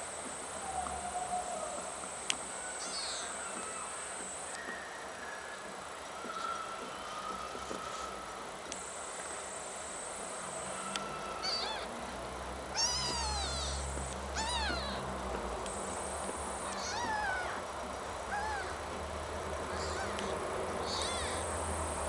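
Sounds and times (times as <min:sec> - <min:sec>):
kittens mewing: 0:10.8 - 0:12.0, 0:12.7 - 0:15.1, 0:15.7 - 0:17.7, 0:18.3 - 0:18.8, 0:19.6 - 0:22.0.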